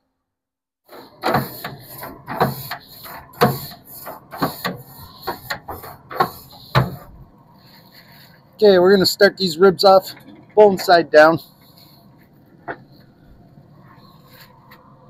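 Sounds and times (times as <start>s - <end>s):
grill brush scraping grates: 0.9s - 9.1s.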